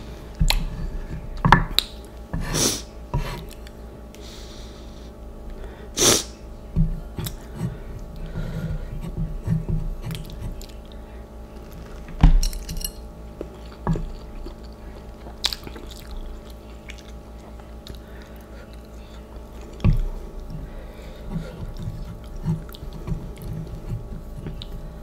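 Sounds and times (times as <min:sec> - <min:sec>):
person chewing noodles: 0:13.3 - 0:25.0.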